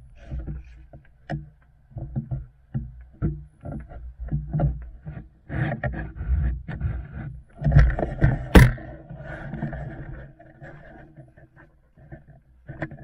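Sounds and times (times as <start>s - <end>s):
sharp crack: 8.4s - 9.0s.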